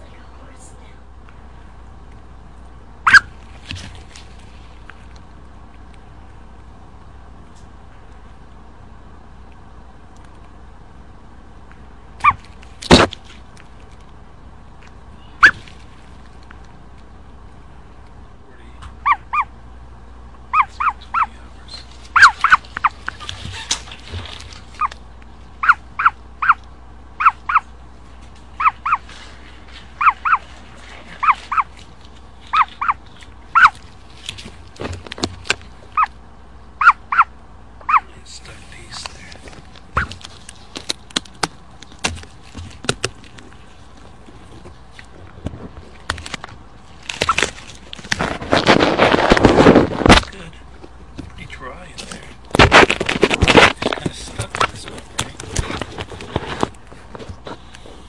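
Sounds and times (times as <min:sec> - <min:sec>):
chick peeping: 0:20.5 - 0:23.8.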